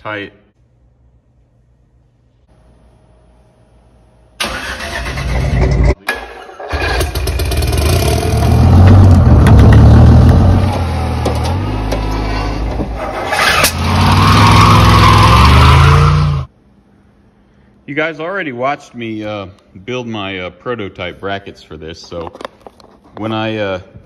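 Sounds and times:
engine running: 6.7s - 16.5s.

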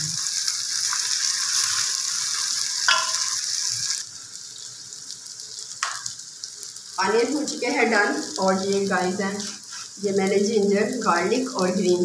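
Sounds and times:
onions sizzling in hot oil: 0.0s - 12.0s
spatula stirring in pot: 9.3s - 10.0s.

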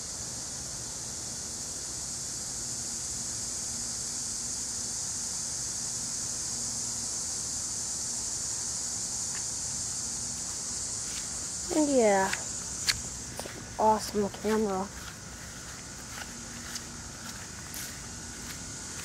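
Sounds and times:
air conditioner hum and fan: 0.0s - 19.0s
high hiss: 0.0s - 19.0s.

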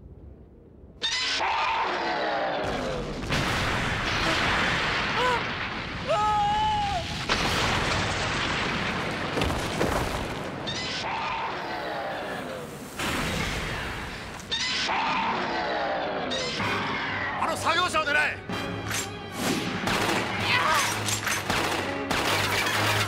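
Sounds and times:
heavy explosions with debris: 2.6s - 10.8s, 12.9s - 14.4s.

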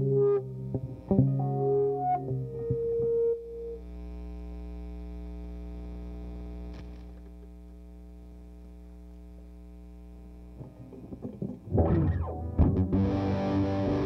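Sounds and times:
scratchy guitar string noises: 0.0s - 3.7s, 10.6s - 14.0s
guitar amp mains hum: 0.0s - 14.0s.

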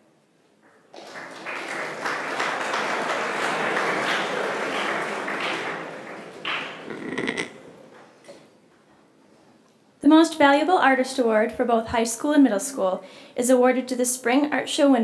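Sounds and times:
audience applauding: 0.7s - 8.1s.

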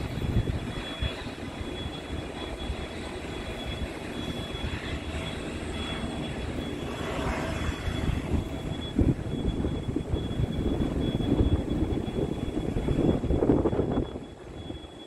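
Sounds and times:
aircraft engine rumble: 0.0s - 15.0s
faint high whine: 0.0s - 15.0s.

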